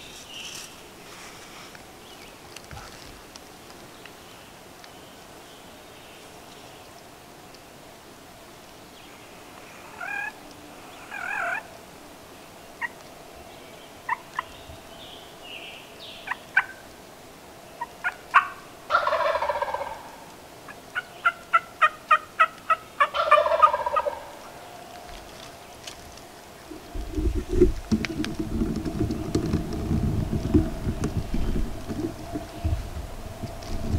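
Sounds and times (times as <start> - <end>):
short turkey calls: 9.8 - 10.4, 11.0 - 11.7, 17.8 - 24.6
turkey gobbling: 9.9 - 10.4, 11.0 - 11.7, 14.1 - 14.5, 16.2 - 16.8, 17.8 - 20.3, 20.9 - 24.6
sharp evenly spaced turkey notes: 17.8 - 20.2, 20.9 - 24.6.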